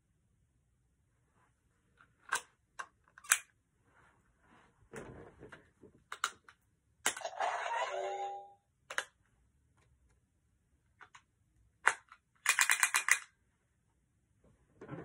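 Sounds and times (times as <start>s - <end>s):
toy electronic sound effect: 7.2s - 8.6s
hard plastic toy clicks: 11.8s - 13.3s.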